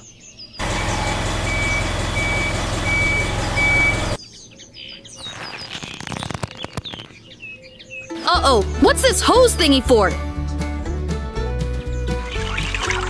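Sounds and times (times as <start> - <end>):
birdsong: 0.0 - 8.8
reversing beeper: 0.6 - 4.2
vehicle engine rumble: 0.6 - 4.2.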